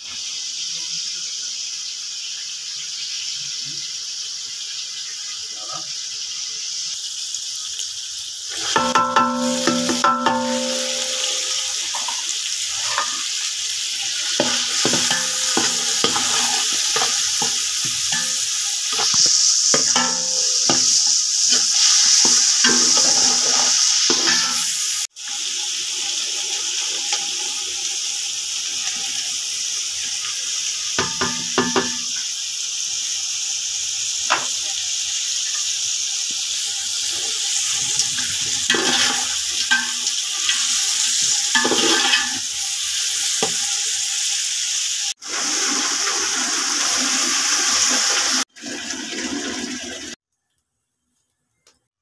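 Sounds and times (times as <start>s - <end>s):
vegetables frying in hot oil: 0.0s - 48.6s
metallic ringing: 8.7s - 11.9s, 14.4s - 16.6s, 19.7s - 20.9s
spatula scraping a pot: 14.4s - 24.7s, 41.6s - 42.4s.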